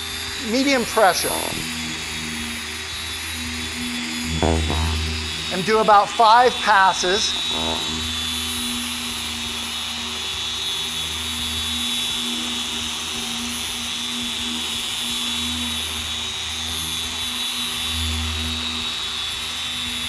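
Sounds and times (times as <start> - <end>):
polisher whining: 4.2 - 5.5, 7.2 - 17.9
low hum: 4.2 - 8.4.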